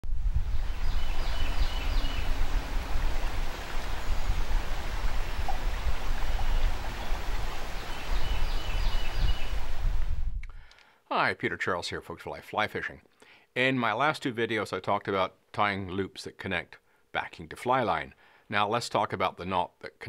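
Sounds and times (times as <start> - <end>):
river water flowing: 0.2 - 10.1.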